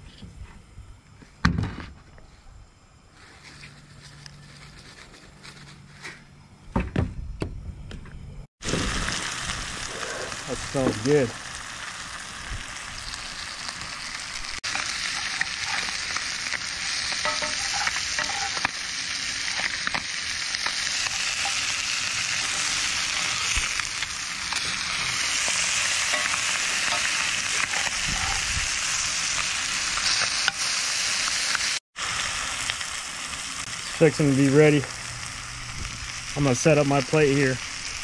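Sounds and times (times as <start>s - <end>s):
fish fillets sizzling: 8.6s - 38.0s.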